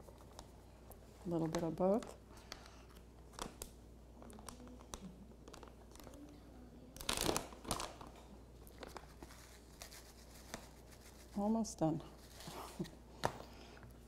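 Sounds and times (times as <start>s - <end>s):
plastic bag crinkling: 4.2s - 6.2s, 7.0s - 11.4s.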